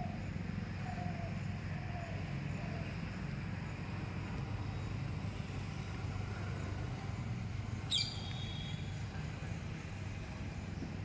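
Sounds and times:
low outdoor rumble: 0.0 - 11.0
bird chirp: 7.9 - 9.0.

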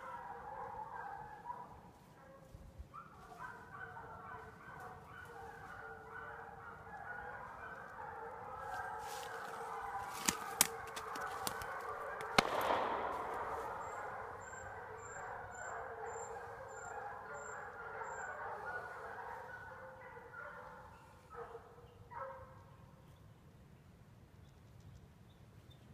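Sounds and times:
hounds baying: 0.0 - 22.5
sharp cracks: 10.1 - 15.2
loud ringing crack: 12.3 - 15.2.

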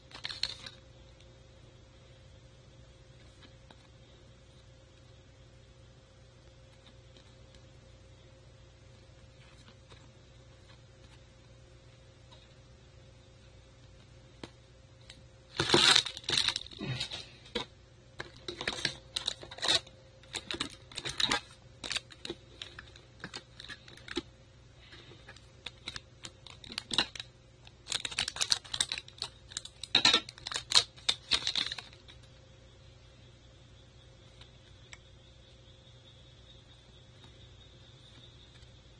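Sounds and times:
trading cards clicking and rustling: 13.9 - 24.3, 24.9 - 32.2.

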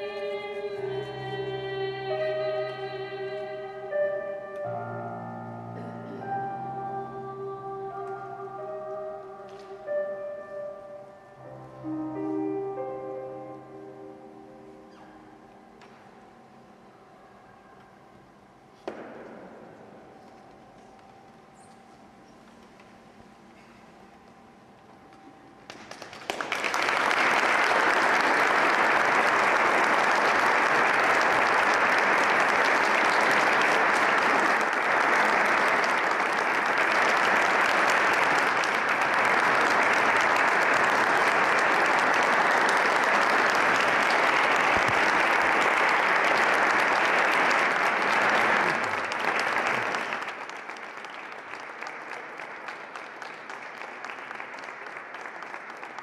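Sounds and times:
audience applauding: 25.2 - 56.0.

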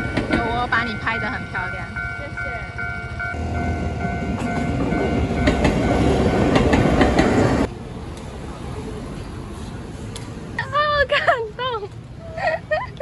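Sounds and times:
wheel clacks over rail joints: 0.0 - 0.7
steady ringing tone: 0.0 - 6.6
train rumbling past: 0.0 - 10.6.

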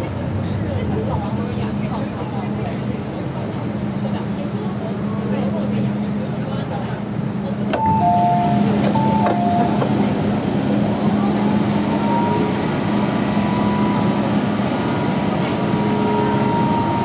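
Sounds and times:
train interior hum: 0.0 - 17.0
faint high steady tone: 7.8 - 10.0, 10.9 - 17.0
two-tone door chime: 7.8 - 10.1.

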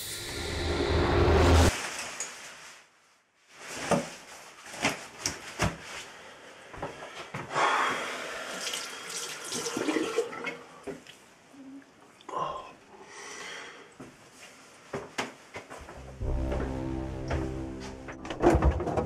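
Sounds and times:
water running into sink: 8.6 - 10.5.

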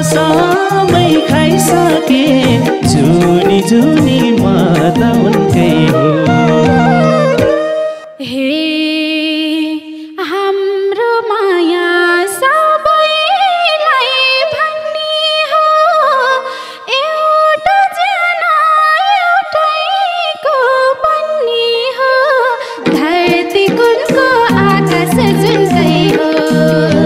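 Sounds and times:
winding folk melody: 0.0 - 8.1, 22.9 - 27.0
held wavering note: 0.0 - 8.2.

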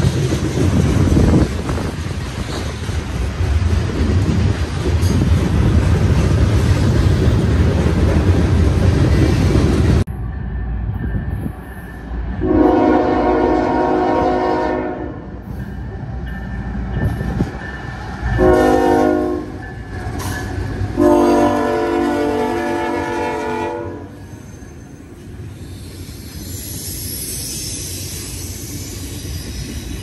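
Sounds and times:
freight train rumbling past: 0.0 - 30.0
locomotive air horn blasts: 12.4 - 15.2, 18.4 - 19.6, 21.0 - 24.2.

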